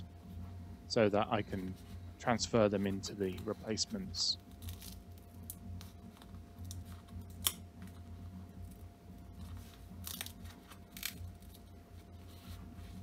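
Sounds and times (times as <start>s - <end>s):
ear pad tearing and crackling: 4.4s - 6.0s, 6.6s - 7.6s, 8.6s - 11.7s.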